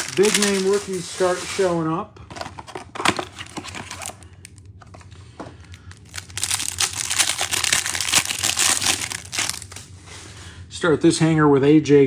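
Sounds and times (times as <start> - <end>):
plastic wrapper crinkling: 0.0 - 1.2, 3.0 - 10.0.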